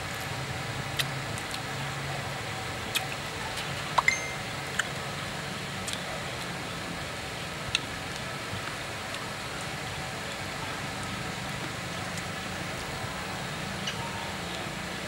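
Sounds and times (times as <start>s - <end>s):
people chewing and crunching: 0.9s - 1.9s, 2.8s - 4.1s, 5.8s - 6.5s, 7.7s - 14.7s.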